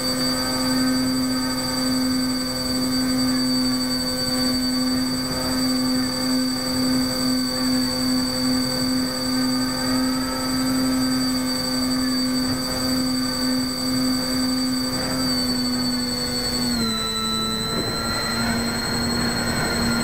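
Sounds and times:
electric motors and propellers whine: 0.0 - 20.0.

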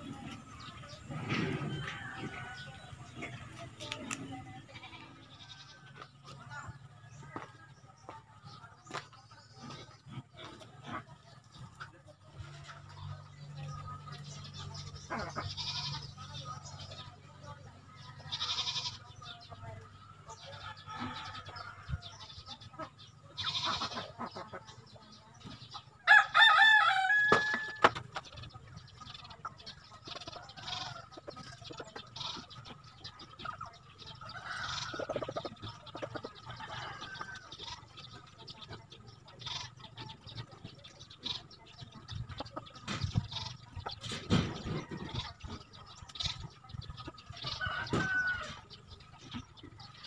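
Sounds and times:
birds chirping: 0.0 - 50.0
rooster crowing: 26.0 - 27.8, 47.6 - 48.6.

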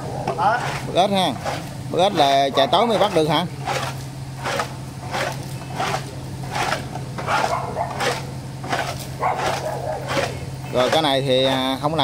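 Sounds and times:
steady low hum: 0.0 - 12.0
dog barking: 7.3 - 8.3, 9.2 - 10.4.

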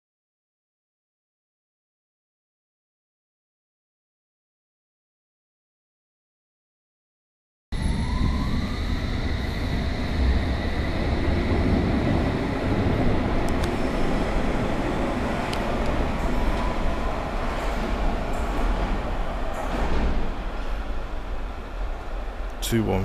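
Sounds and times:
train wheels rumbling on rail: 7.8 - 23.0.

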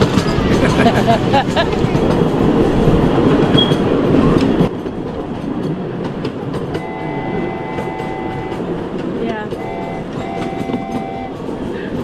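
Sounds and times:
miniature train rumbling and rattling: 0.0 - 12.0
steady tone: 6.8 - 11.4.

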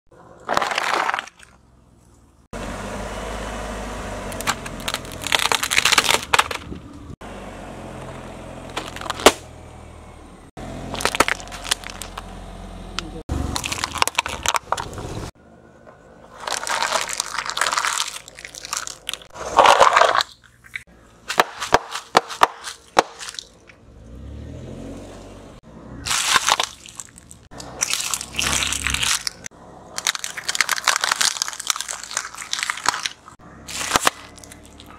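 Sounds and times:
car rumble: 0.1 - 34.9
plastic toys cracking: 4.4 - 6.8, 10.9 - 12.3, 13.5 - 15.0, 16.3 - 23.7, 26.1 - 34.9
cardboard boxes crumpling: 16.3 - 20.4, 26.1 - 34.9.

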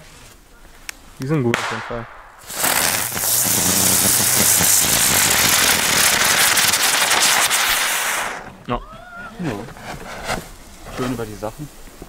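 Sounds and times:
spinner firework hissing: 2.2 - 8.6.

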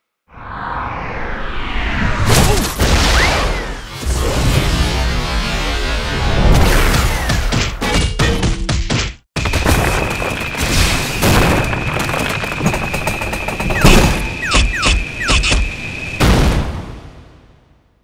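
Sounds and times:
boom: 16.2 - 17.2.

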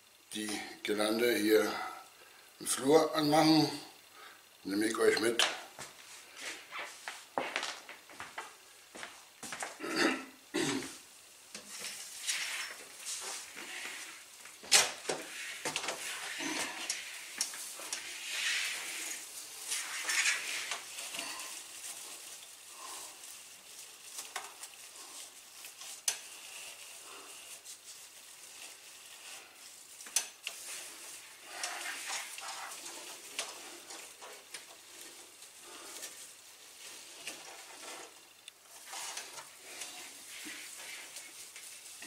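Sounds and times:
plastic foliage rustling: 11.0 - 42.0.

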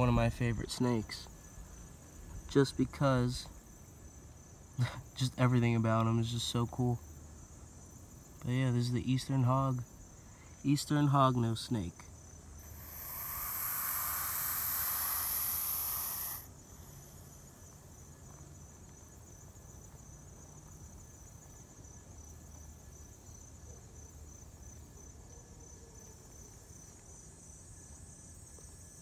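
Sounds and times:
insects trilling: 0.0 - 29.0
snake hissing: 12.6 - 17.4.

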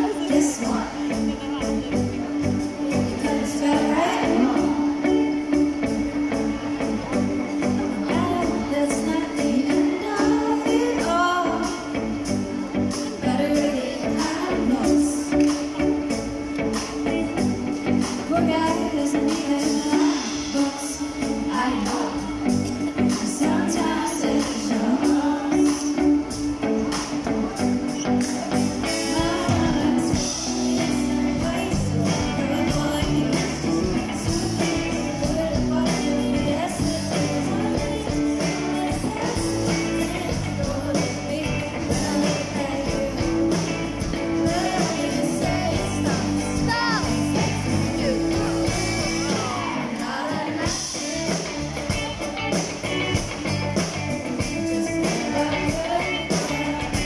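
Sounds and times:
woman singing: 0.0 - 1.6, 2.4 - 57.0
live band playing: 0.0 - 57.0.

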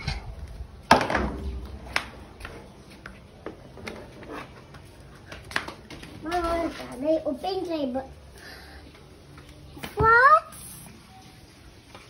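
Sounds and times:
plastic chair knocking and clattering: 0.9 - 2.1.

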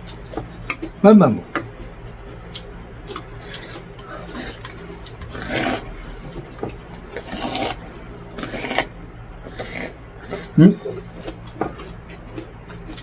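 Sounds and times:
man slurping noodles: 5.3 - 5.9, 7.2 - 7.8, 9.5 - 11.0.

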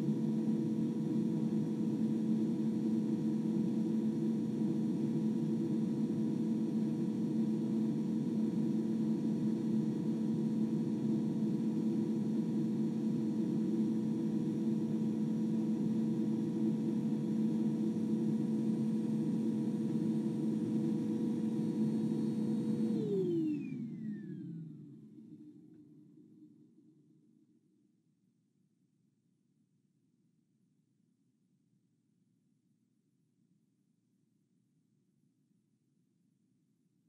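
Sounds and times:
muffled vacuum cleaner running: 17.8 - 25.6.

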